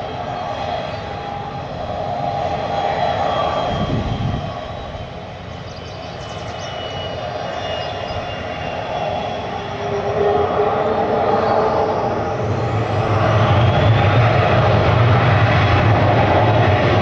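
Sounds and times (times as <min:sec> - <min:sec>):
jet engines rumbling with whine: 0:00.0 - 0:17.0.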